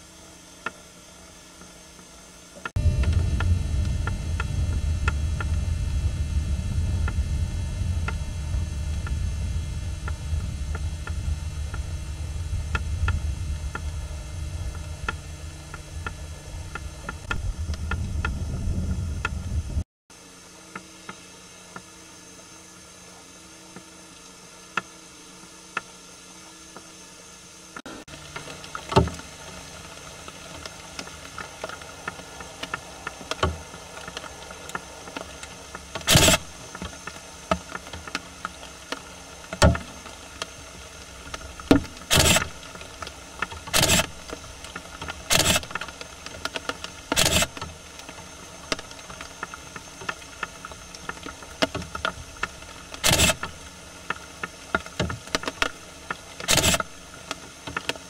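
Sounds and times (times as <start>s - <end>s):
steady hiss: 0.0s - 58.0s
animals rustling in dry leaves: 28.1s - 58.0s.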